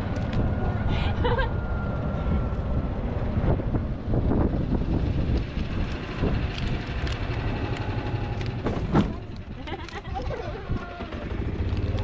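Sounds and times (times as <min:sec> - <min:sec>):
wind on microphone: 0:02.1 - 0:07.6
knocks and rattles: 0:08.5 - 0:09.4.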